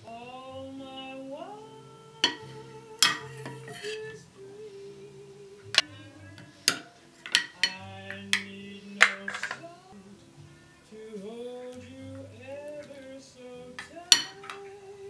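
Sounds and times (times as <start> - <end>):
soft background music: 0.0 - 15.0
metal ladle clinking on shells: 9.0 - 9.6, 14.1 - 14.6.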